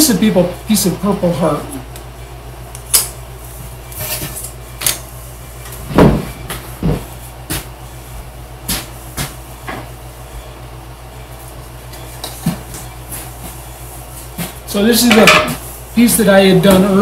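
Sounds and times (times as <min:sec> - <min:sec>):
steady low hum: 0:00.0 - 0:17.0
objects knocking on a worktable: 0:15.1 - 0:15.6.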